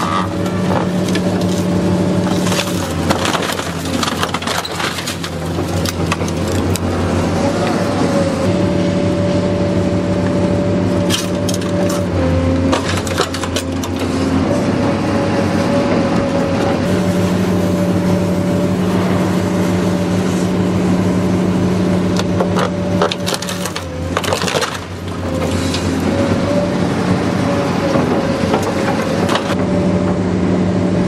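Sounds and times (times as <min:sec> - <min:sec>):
hydraulic whine: 0:00.0 - 0:31.0
machine engine drone: 0:00.0 - 0:31.0
metal and plastic cracking: 0:00.4 - 0:06.9, 0:11.0 - 0:14.2, 0:22.2 - 0:26.0.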